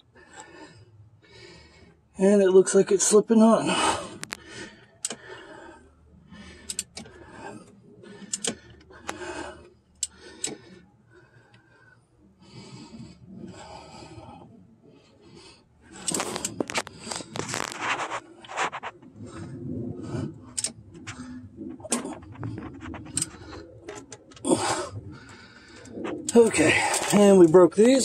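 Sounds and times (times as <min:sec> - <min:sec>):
rubber belt rubbing and scraping: 0:12.4 - 0:28.0.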